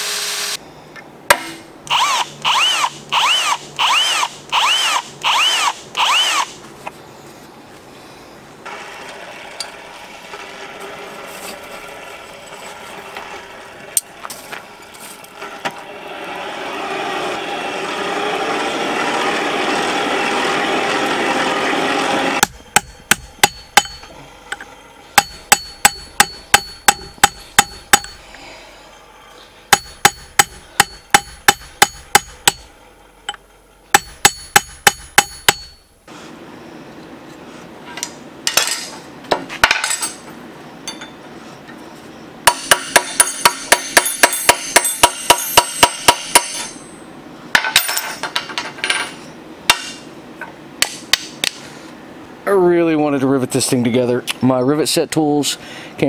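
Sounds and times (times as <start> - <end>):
forge blower rushing air: 8.6 - 33.1
hammer striking steel on anvil: 22.4 - 24.1, 25.2 - 28.2, 29.7 - 32.7, 33.3 - 35.9, 42.5 - 47.0, 49.7 - 50.0.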